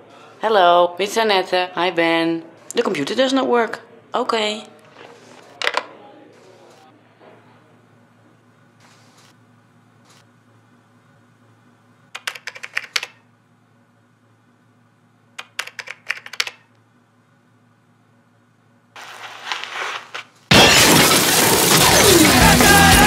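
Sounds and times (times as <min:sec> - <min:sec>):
computer keyboard typing: 0:12.2 - 0:13.2, 0:15.4 - 0:16.6
loud rock music: 0:21.8 - 0:23.0.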